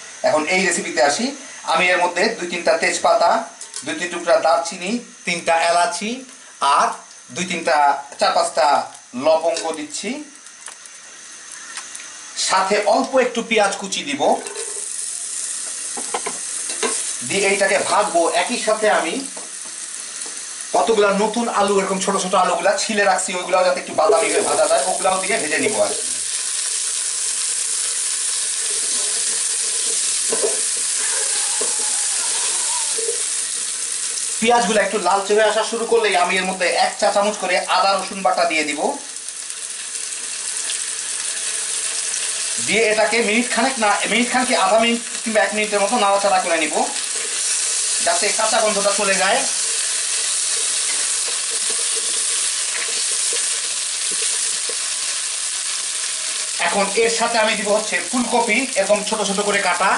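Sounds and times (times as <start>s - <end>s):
oil sizzling in a pan: 8.2s - 59.9s
spatula scraping a pan: 28.8s - 33.3s.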